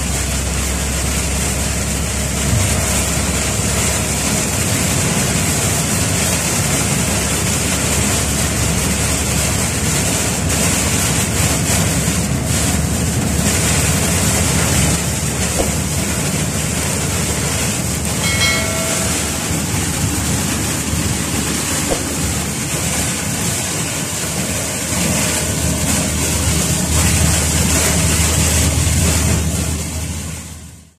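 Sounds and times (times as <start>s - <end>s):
car driving in heavy rain: 0.0s - 30.9s
short chime: 18.2s - 20.4s.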